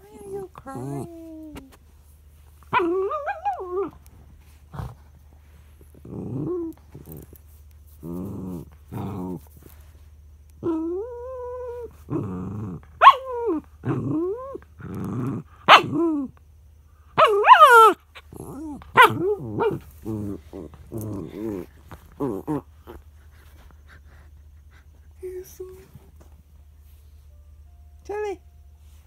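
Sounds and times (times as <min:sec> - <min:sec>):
dog growling and whining: 0:00.0 - 0:01.8, 0:02.6 - 0:05.2, 0:05.8 - 0:09.9, 0:10.6 - 0:16.4, 0:17.2 - 0:25.2
dog howling: 0:02.7 - 0:04.0
dog barking: 0:13.0 - 0:13.3, 0:15.7 - 0:16.0, 0:17.2 - 0:18.0, 0:19.0 - 0:19.8.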